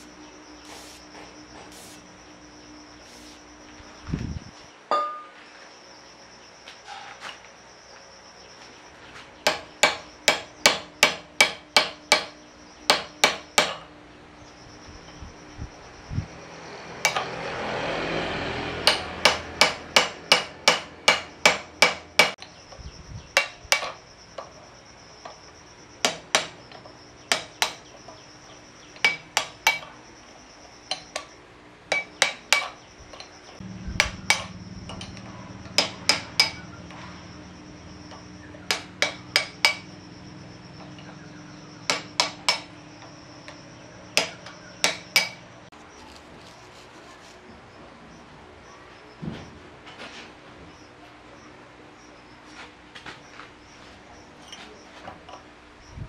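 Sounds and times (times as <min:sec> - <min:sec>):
hammer blows on metal: 0:33.6 - 0:36.8.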